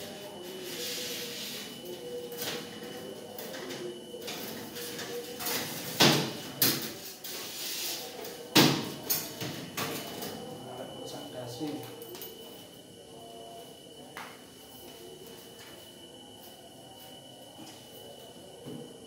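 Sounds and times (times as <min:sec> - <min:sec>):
faint steady hum: 0:07.9 - 0:19.0.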